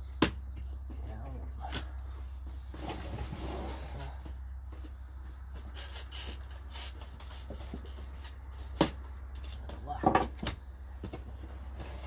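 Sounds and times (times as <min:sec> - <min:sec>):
steady low hum: 0:00.0 - 0:12.0
cardboard box rustling and scraping: 0:02.4 - 0:08.8.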